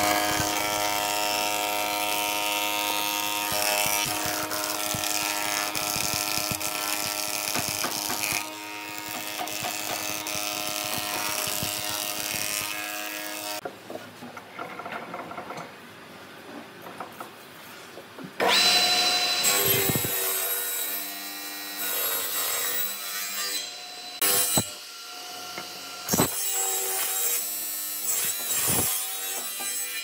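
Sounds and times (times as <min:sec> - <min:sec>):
planer cutting wood board: 0:00.0 - 0:13.6
thickness planer humming: 0:00.0 - 0:13.6
knocks of wood handled: 0:03.6 - 0:08.5.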